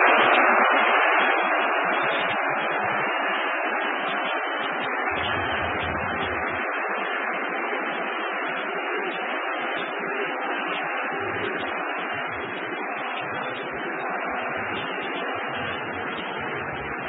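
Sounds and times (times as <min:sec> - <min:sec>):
stadium crowd noise: 0:00.0 - 0:17.0
low rumble: 0:05.1 - 0:06.6.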